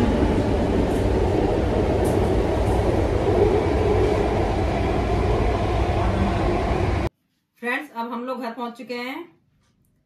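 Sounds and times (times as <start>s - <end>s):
train carriage low rumble: 0.0s - 7.1s.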